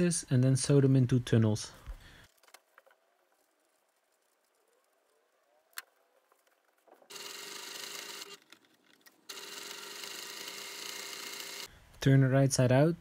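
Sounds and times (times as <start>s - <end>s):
electric sewing machine stitching: 7.1s - 8.4s, 9.3s - 11.7s.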